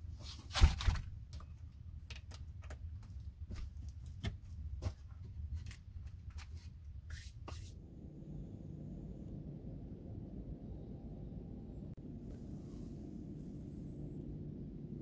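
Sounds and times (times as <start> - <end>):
brushing scrapes: 6.3 - 7.8.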